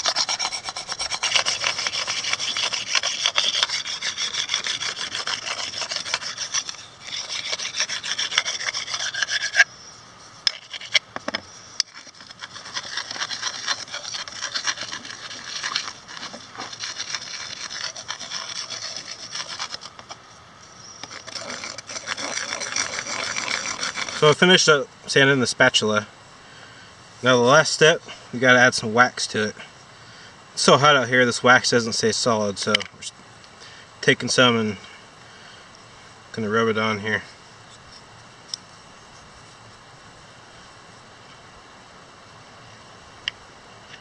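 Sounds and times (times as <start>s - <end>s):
stone rasping on wood: 0.0s - 9.7s, 10.4s - 20.2s, 21.0s - 24.3s.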